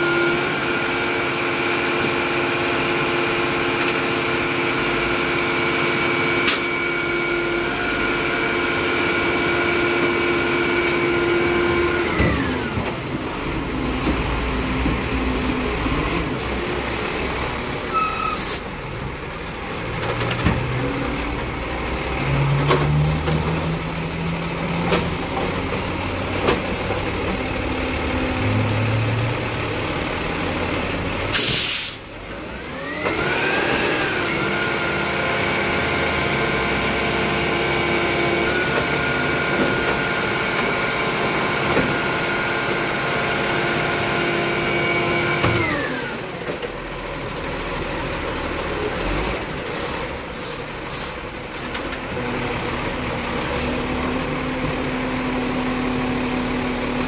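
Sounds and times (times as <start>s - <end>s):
hydraulic pump whine: 0.0s - 16.4s, 31.3s - 46.6s
diesel engine running: 0.0s - 57.0s
air brake hiss: 17.9s - 18.7s, 31.3s - 32.1s, 50.4s - 51.2s.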